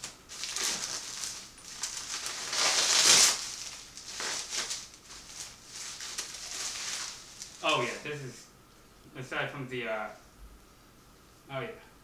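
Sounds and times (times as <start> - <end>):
plastic wrapping crinkling: 0.0 - 8.0.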